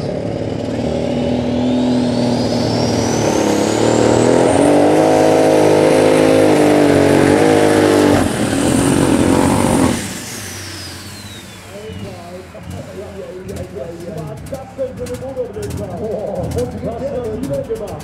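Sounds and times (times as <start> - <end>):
tractor engine at full throttle: 0.0 - 18.0
turbo whistle: 10.5 - 12.4.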